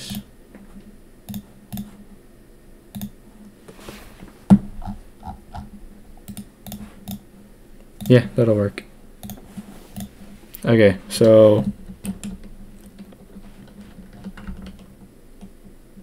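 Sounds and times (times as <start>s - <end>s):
keyboard and mouse clicks: 1.3s - 2.0s, 2.9s - 3.2s, 4.8s - 7.2s, 9.2s - 10.1s.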